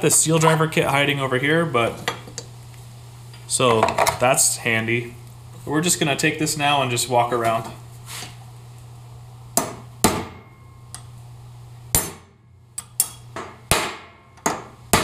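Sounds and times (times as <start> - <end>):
hammer striking steel punch: 9.6 - 11.1, 11.9 - 15.0.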